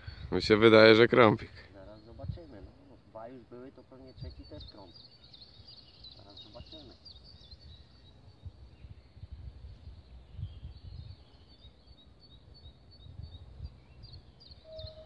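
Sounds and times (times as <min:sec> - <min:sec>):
small birds chirping: 0:00.0 - 0:15.0
wind rumble on microphone: 0:01.4 - 0:03.0, 0:04.0 - 0:04.9, 0:06.6 - 0:11.7, 0:12.4 - 0:15.0.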